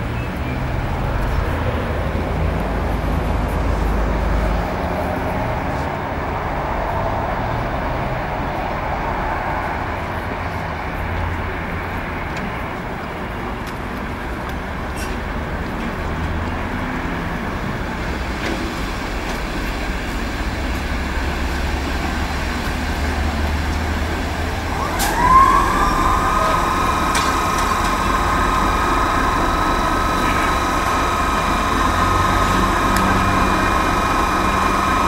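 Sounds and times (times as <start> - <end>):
locomotive low rumble: 0.0 - 35.0
electric blower whine: 24.7 - 35.0.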